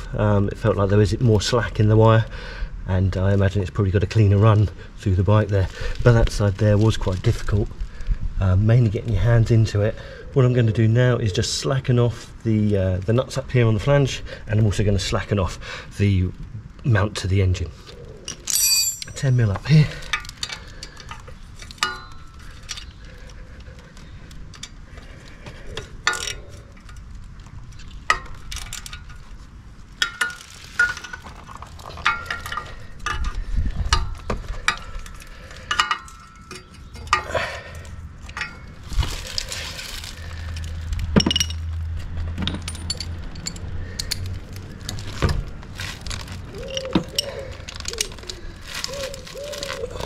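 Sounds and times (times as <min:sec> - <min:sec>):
spanner clinking on metal nuts: 0:18.3 - 0:23.0, 0:31.9 - 0:37.4, 0:42.4 - 0:44.3.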